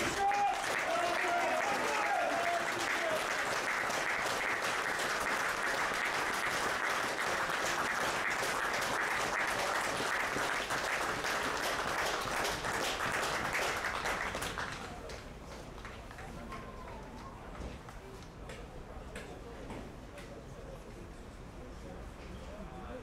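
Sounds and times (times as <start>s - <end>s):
crowd applauding: 0.0s - 17.0s.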